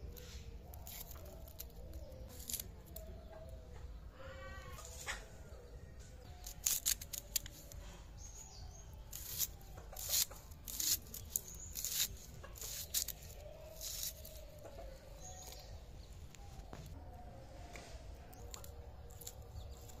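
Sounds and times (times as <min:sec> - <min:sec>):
onion skin tearing: 0:00.1 - 0:03.1, 0:06.3 - 0:07.8, 0:08.4 - 0:14.6, 0:18.4 - 0:20.0
blade cutting onion: 0:06.3 - 0:07.7, 0:09.0 - 0:14.4.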